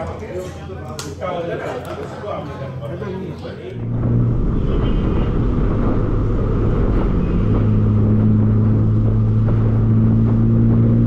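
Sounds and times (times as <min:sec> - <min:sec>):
road noise rumble: 0:03.5 - 0:11.0
car engine hum: 0:03.8 - 0:11.0.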